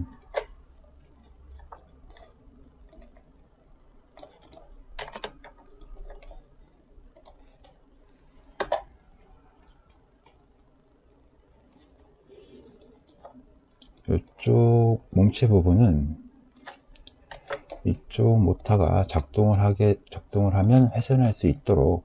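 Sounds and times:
computer mouse clicks: 0.1 - 3.3, 4.1 - 6.5, 7.1 - 7.8, 9.6 - 10.4, 11.5 - 14.4, 16.5 - 17.9.

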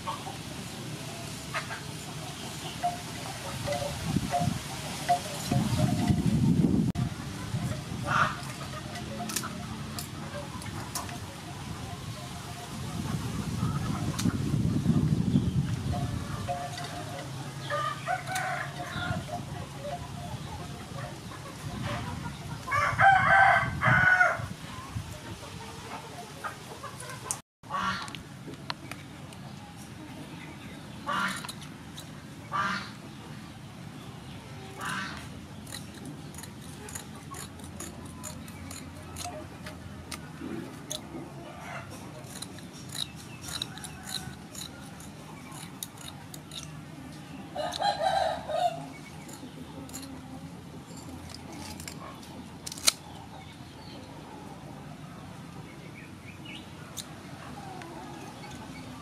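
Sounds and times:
rooster crowing: 17.7 - 19.2, 22.7 - 24.5, 47.6 - 48.9.

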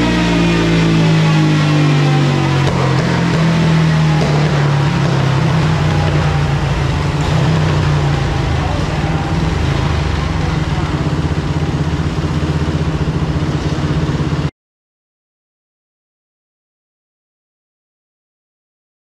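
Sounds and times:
dirt bike engine idling: 0.0 - 14.5.

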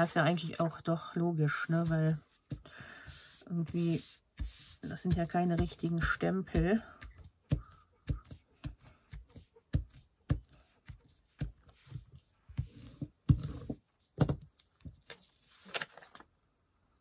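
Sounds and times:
paper rustling: 14.6 - 16.3.

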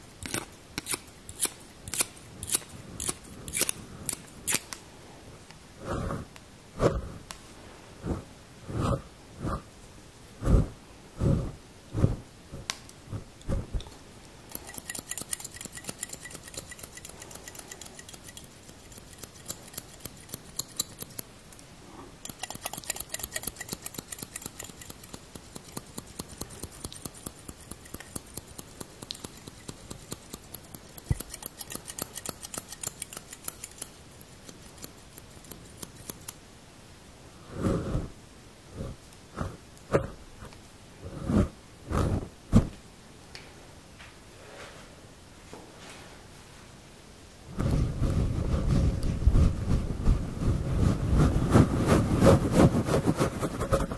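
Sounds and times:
scissors snipping fur: 0.2 - 4.8, 14.5 - 21.3, 22.2 - 36.4.

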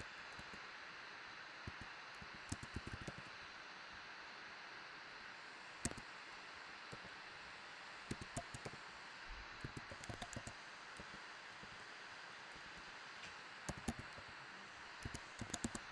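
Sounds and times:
faint steady hiss: 0.0 - 15.9
computer keyboard typing: 1.7 - 3.3, 5.8 - 6.0, 8.1 - 8.8, 9.6 - 11.2, 13.7 - 14.3, 15.0 - 15.9.

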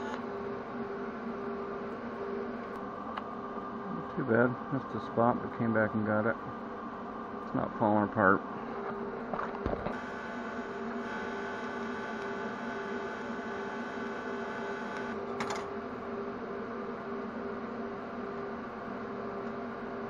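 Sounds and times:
welding arc buzzing: 0.0 - 0.3, 9.6 - 15.3
welding machine hum: 0.0 - 3.4, 8.7 - 16.2.

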